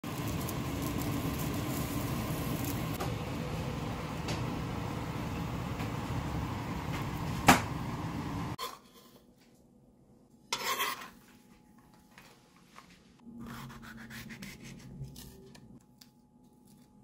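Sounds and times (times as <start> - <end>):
gas burner flames: 0.0 - 8.6.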